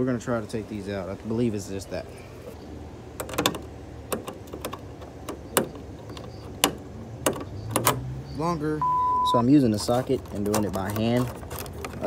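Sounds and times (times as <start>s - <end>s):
hand tools clicking on metal: 9.7s - 12.0s.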